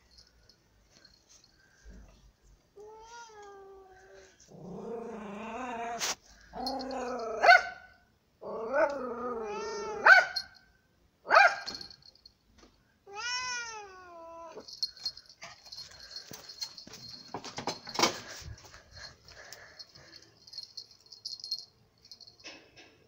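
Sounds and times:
cat yowling and growling: 8.4s - 10.3s, 13.1s - 14.7s.

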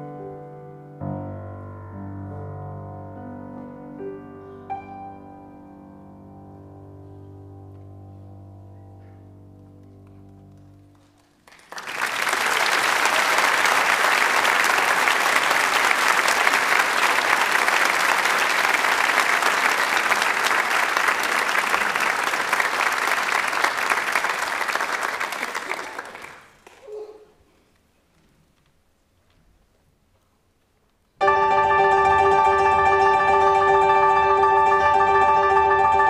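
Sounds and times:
audience applause: 10.9s - 26.8s
grand piano chord: 31.2s - 36.0s.

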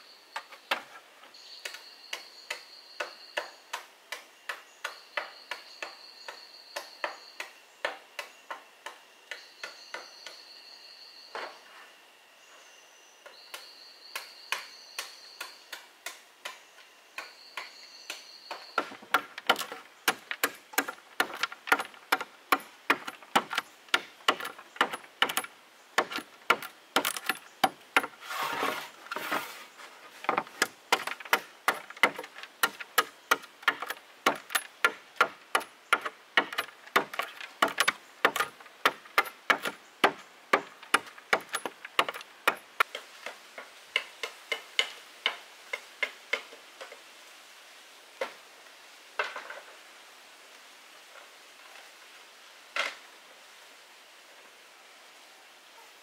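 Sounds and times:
insects calling: 0.0s - 43.0s
knife chopping bamboo: 30.3s - 42.6s.

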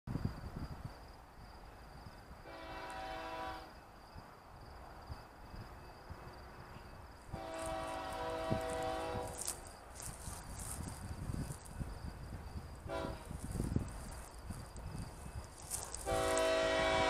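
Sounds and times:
distant locomotive horn: 2.4s - 3.8s, 7.3s - 9.5s, 12.8s - 13.4s, 15.7s - 17.0s.

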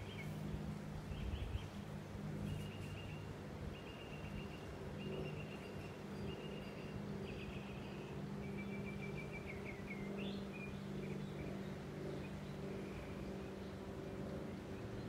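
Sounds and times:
steady low hum: 0.0s - 15.0s
songbird trilled chirps: 2.4s - 13.8s.

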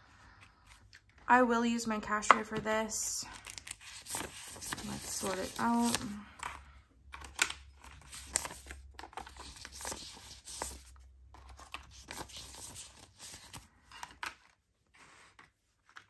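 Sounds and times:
banknotes crinkling: 3.3s - 14.2s.

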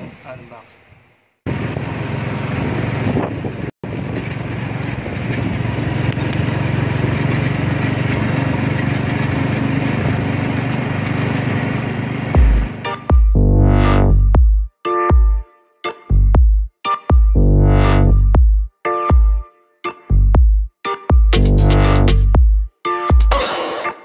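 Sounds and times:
road noise: 0.0s - 14.2s
small vehicle engine running: 1.5s - 13.1s.

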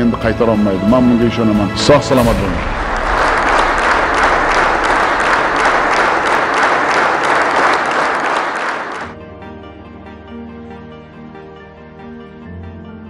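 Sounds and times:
quiet music: 0.0s - 6.7s
crowd applauding: 2.2s - 9.2s.

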